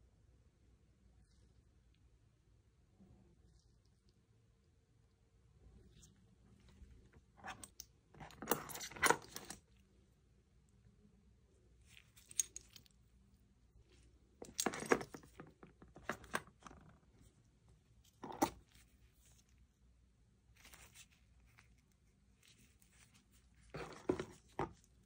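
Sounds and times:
metal handles clicking and clattering: 0:07.5 - 0:09.6, 0:14.4 - 0:16.5.

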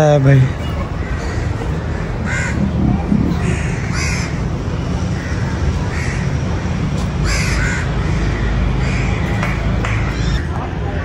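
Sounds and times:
crows cawing: 0:01.0 - 0:02.8, 0:03.4 - 0:04.4, 0:05.1 - 0:06.3, 0:07.2 - 0:09.3.

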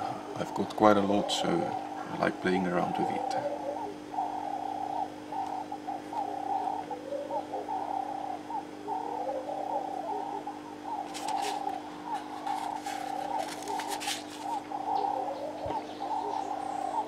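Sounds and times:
dove cooing: 0:00.0 - 0:17.0
faint steady hum: 0:00.0 - 0:17.0
brief rustle: 0:12.2 - 0:14.6.

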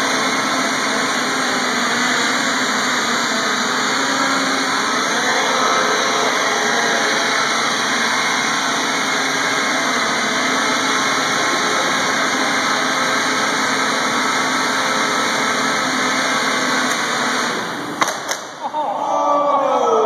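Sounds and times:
quadcopter propellers buzzing: 0:00.0 - 0:18.0.

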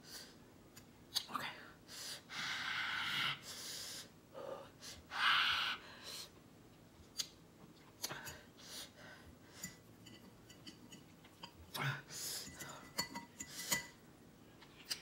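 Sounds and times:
person hissing breaths: 0:01.9 - 0:06.4, 0:08.0 - 0:09.8, 0:12.0 - 0:13.9.

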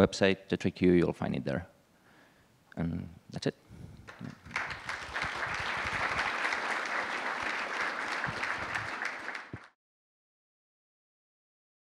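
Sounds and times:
audience applauding: 0:04.1 - 0:09.8.

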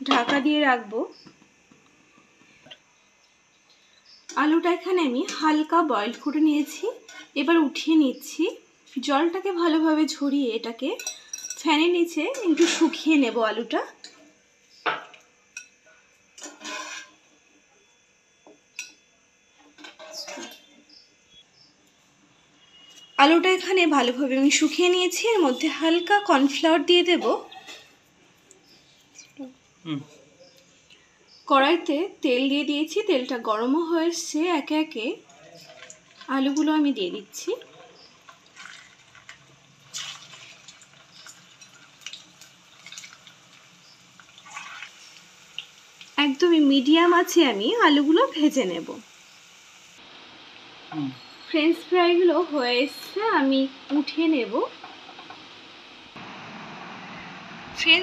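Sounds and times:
potatoes sizzling in hot oil: 0:36.0 - 0:58.0.

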